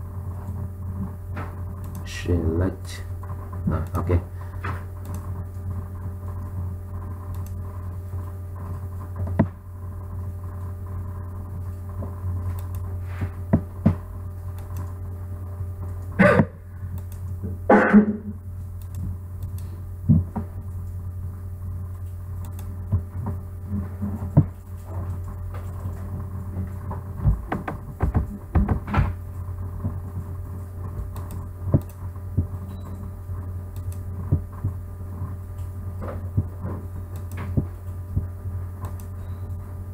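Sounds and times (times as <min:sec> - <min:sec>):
low electrical hum: 0:00.0 - 0:39.9
computer mouse clicks: 0:05.0 - 0:05.3, 0:07.3 - 0:07.6, 0:12.5 - 0:12.9, 0:14.5 - 0:15.0, 0:16.9 - 0:17.4, 0:18.8 - 0:19.7, 0:22.4 - 0:22.7, 0:31.1 - 0:32.0, 0:33.7 - 0:34.0, 0:37.1 - 0:37.4, 0:38.8 - 0:39.1.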